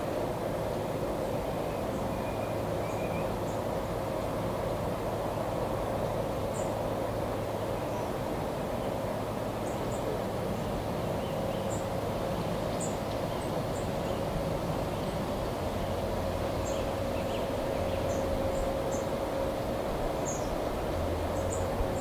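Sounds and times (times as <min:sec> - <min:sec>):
distant steam locomotive: 0:00.0 - 0:22.0
small birds chirping: 0:20.2 - 0:20.6.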